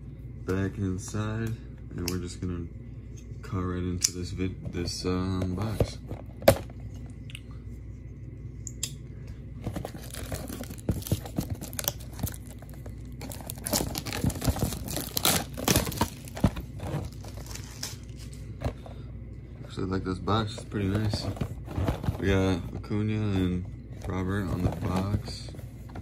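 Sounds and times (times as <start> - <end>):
plastic wrap tearing and crinkling: 9.9 - 18.3.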